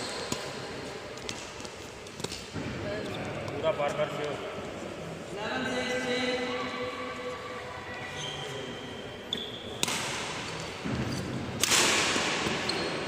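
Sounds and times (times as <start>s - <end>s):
shoe squeaks: 8.0s - 9.8s, 12.6s - 13.0s
racket hitting shuttlecock: 9.8s - 11.0s, 11.6s - 12.8s.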